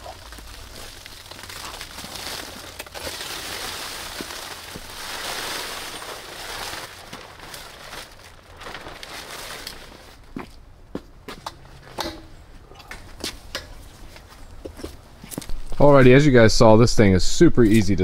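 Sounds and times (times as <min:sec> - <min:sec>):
tent fabric rustling: 0:00.0 - 0:10.4.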